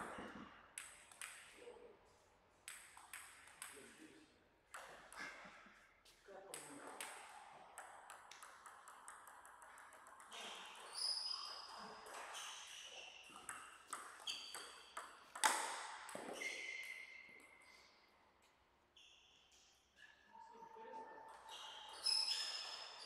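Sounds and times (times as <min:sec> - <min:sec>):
ball hitting paddles and table: 0:00.0 - 0:01.6, 0:02.6 - 0:04.0, 0:04.7 - 0:05.5, 0:06.5 - 0:17.7
ping pong ball bouncing: 0:00.8 - 0:01.5, 0:02.7 - 0:03.8, 0:06.5 - 0:12.4, 0:13.2 - 0:17.5.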